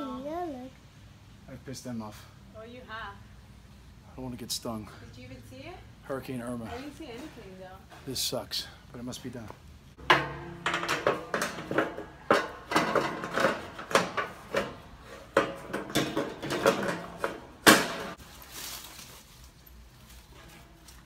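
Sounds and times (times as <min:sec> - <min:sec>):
metal shutter panels clattering: 0:10.0 - 0:18.2.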